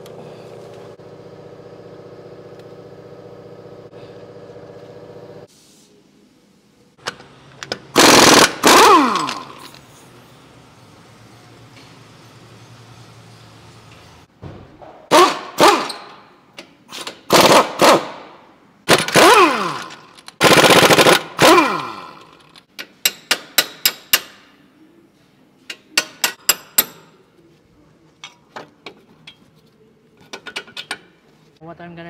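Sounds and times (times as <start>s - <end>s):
impact wrench hammering: 18.9s - 24.5s, 26.0s - 27.1s.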